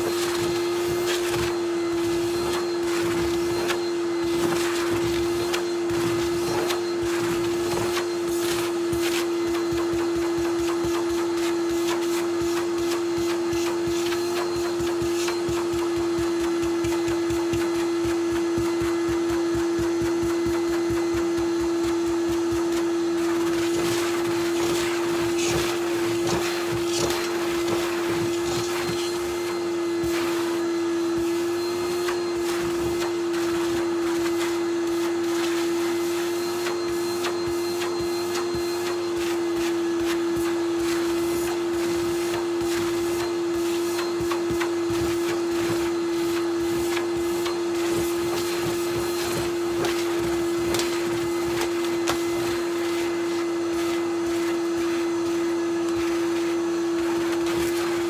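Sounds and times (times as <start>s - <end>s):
vacuum cleaner running: 0.0s - 58.0s.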